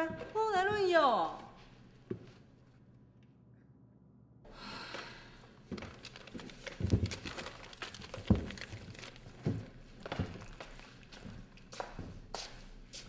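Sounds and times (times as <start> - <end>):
footsteps on wooden stage: 0.0 - 1.5.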